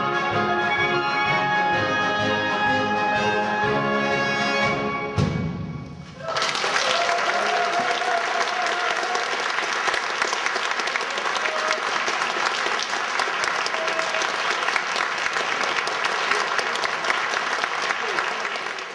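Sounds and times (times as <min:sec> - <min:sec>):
audience applauding: 0:06.2 - 0:18.9.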